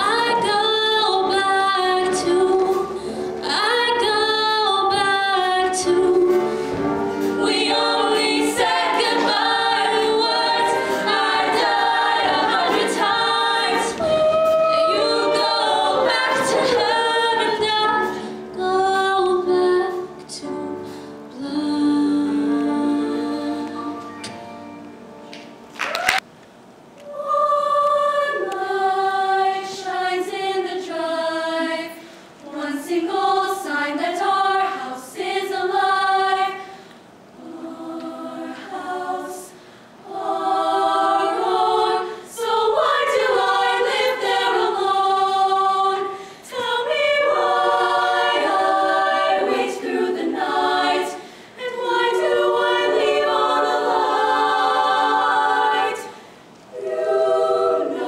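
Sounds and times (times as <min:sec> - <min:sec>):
women's choir singing in harmony: 0:00.0 - 0:25.7, 0:27.0 - 0:58.0.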